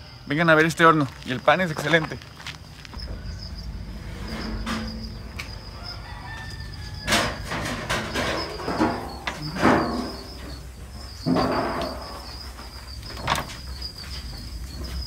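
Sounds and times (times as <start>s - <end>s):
high-pitched insect trill: 0.0s - 15.0s
rooster crowing: 3.0s - 10.6s.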